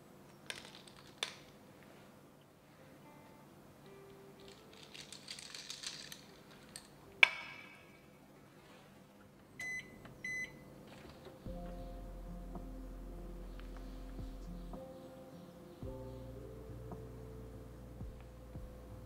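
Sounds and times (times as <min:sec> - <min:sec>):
ice cubes clinking in a glass: 0:04.4 - 0:06.9
short electronic beeps: 0:09.6 - 0:10.6.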